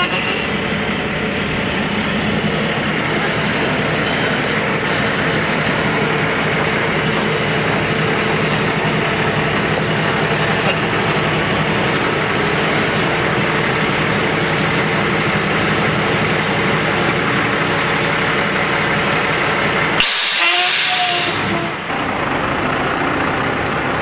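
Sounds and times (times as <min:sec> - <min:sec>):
truck engine idling: 0:00.0 - 0:24.0
compressed air hiss: 0:20.0 - 0:21.6.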